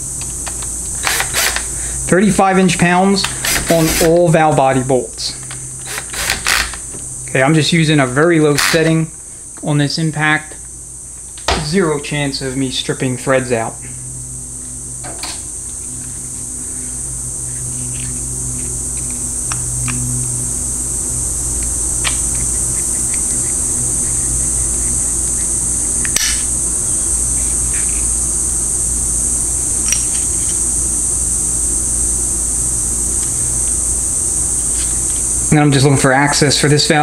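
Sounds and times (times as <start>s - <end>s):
high-pitched hiss: 0.0s - 37.0s
low hum: 10.6s - 37.0s.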